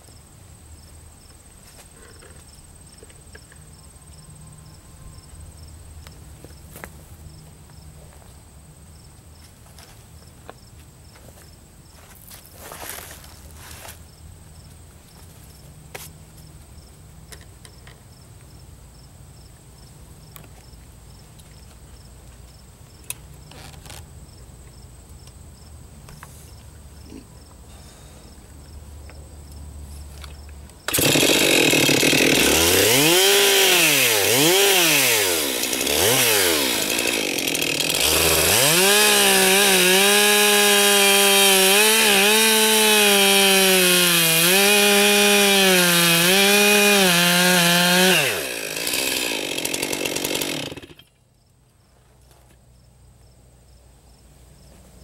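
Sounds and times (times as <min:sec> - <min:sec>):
chainsaw revving and cutting wood: 0:30.8 - 0:51.1.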